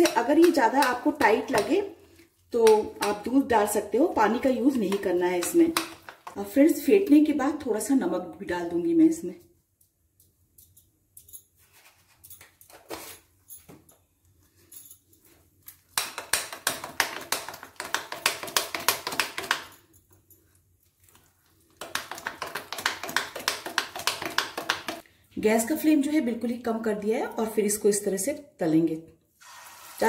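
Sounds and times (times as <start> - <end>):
spoon beating batter in glass bowl: 2.7 - 6.4, 21.8 - 25.0.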